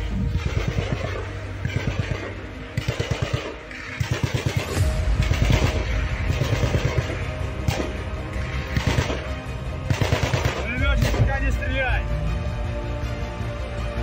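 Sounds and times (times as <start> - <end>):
steady low rumble: 0.0 - 14.0
automatic gunfire bursts: 0.4 - 7.9, 9.9 - 11.2.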